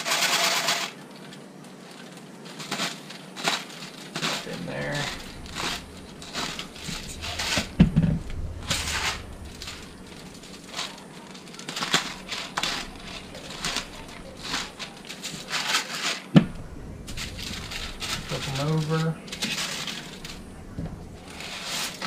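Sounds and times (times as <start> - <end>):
pepper grinder crunching: 0.0 - 16.2.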